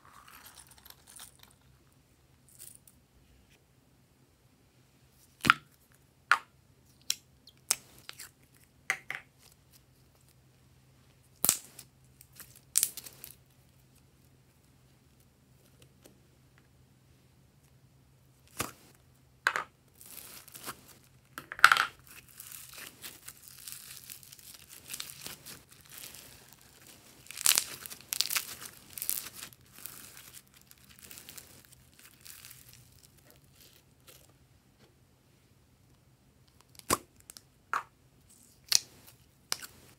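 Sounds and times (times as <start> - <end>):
slime crackling and snapping: 22.4 - 32.9.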